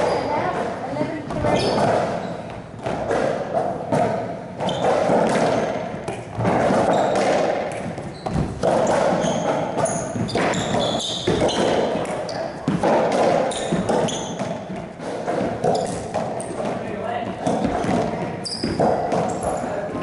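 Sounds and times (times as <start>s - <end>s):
sneaker squeaks: 0.0s - 3.4s, 4.5s - 20.0s
ball striking walls: 0.0s - 20.0s
racquet hitting ball: 0.0s - 20.0s.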